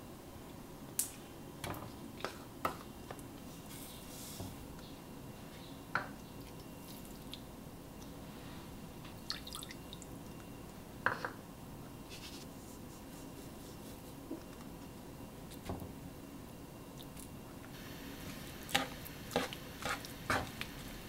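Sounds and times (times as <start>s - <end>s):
liquid dripping: 9.2s - 10.5s.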